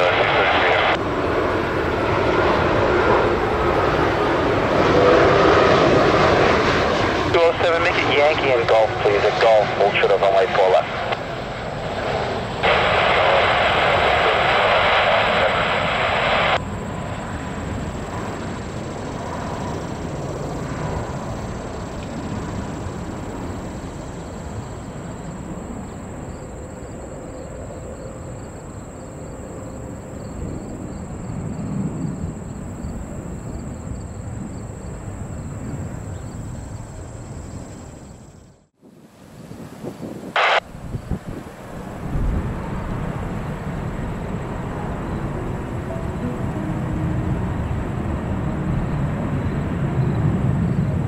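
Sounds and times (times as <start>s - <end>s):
radio hiss: 0.0s - 1.0s, 7.3s - 11.2s, 12.6s - 16.6s, 40.3s - 41.0s
jet engines rumbling: 0.0s - 51.0s.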